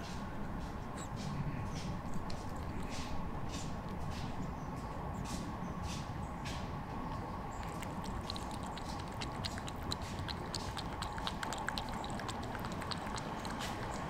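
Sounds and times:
cat lapping water: 0:02.2 - 0:04.0, 0:07.5 - 0:14.0.

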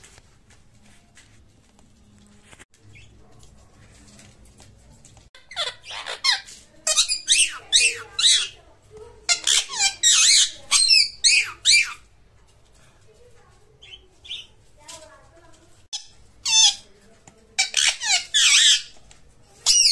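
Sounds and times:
parakeet shrill calls: 0:05.4 - 0:08.6, 0:09.3 - 0:12.1, 0:16.0 - 0:16.8, 0:17.6 - 0:19.0.

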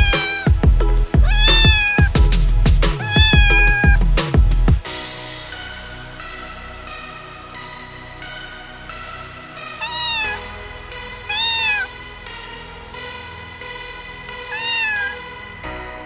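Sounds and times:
cat meowing: 0:00.0 - 0:00.6, 0:01.2 - 0:02.2, 0:03.0 - 0:04.0, 0:09.8 - 0:10.5, 0:11.2 - 0:11.9, 0:14.5 - 0:15.3
electronic background music: 0:00.0 - 0:16.0.

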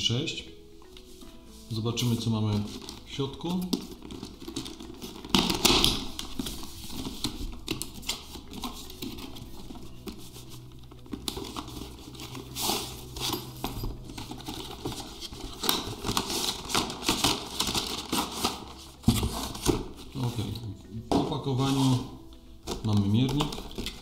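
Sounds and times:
cardboard and plastic packaging rustling: 0:00.8 - 0:24.0
packaging clicks: 0:02.6 - 0:09.8, 0:14.1 - 0:18.8, 0:22.6 - 0:24.0.

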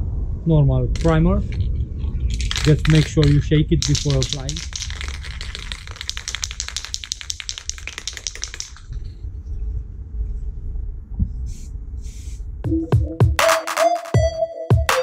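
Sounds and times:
spray can ball rattling: 0:01.0 - 0:09.1
short spray hisses: 0:11.5 - 0:12.5.

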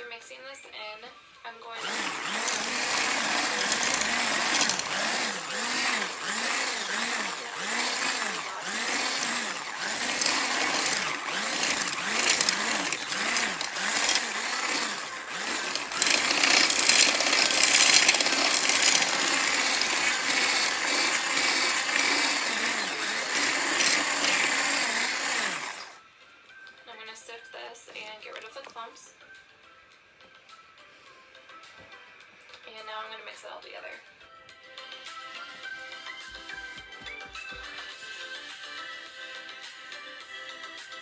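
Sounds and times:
electric stick blender whirring: 0:01.7 - 0:26.0.

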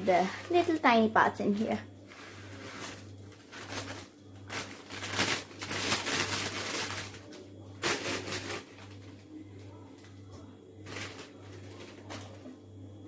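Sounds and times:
low steady hum: 0:00.0 - 0:13.0
plastic packet crinkling: 0:02.3 - 0:09.2, 0:10.8 - 0:12.4.

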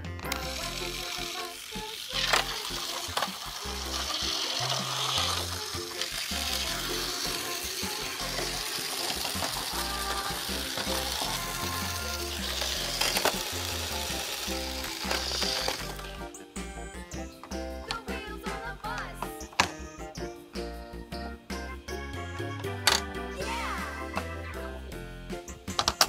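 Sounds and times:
background music: 0:00.0 - 0:26.0
toy lorry rattling on plastic track: 0:00.2 - 0:16.2.

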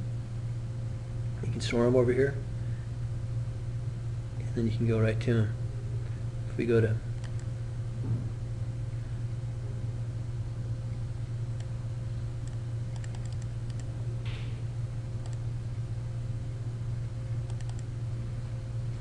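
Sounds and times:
low electrical hum: 0:00.0 - 0:19.0
mouse and keyboard clicks: 0:12.4 - 0:13.9, 0:17.5 - 0:17.9.

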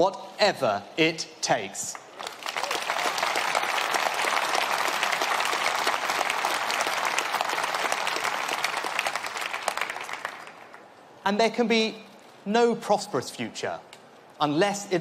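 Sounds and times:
speech: 0:00.0 - 0:02.0, 0:11.2 - 0:15.0
audience applauding: 0:02.1 - 0:10.9.

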